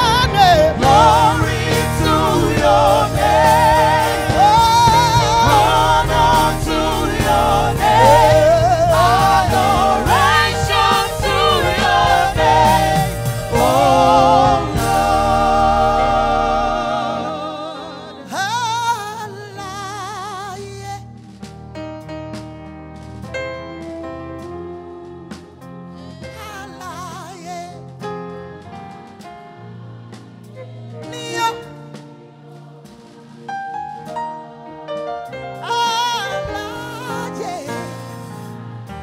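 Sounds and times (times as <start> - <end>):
backing singers: 0.0 - 19.0
gospel band playing: 0.0 - 39.0.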